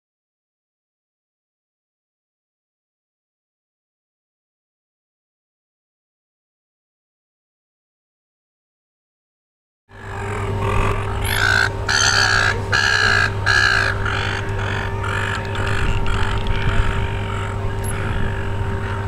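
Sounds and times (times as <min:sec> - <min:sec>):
steady low hum: 0:09.9 - 0:19.0.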